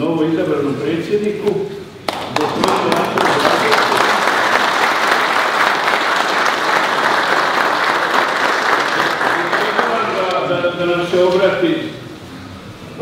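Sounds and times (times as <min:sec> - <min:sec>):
audience applauding: 0:02.1 - 0:10.4.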